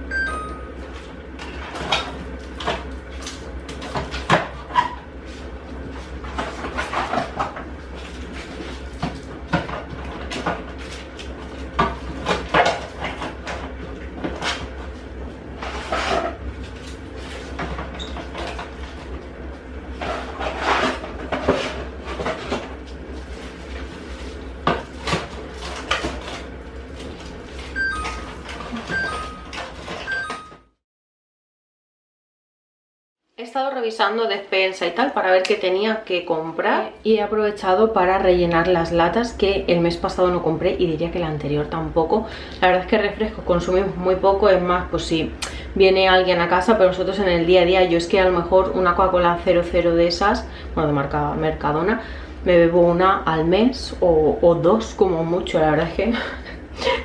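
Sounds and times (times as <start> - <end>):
short high tones: 0.0 - 0.8, 27.8 - 30.7.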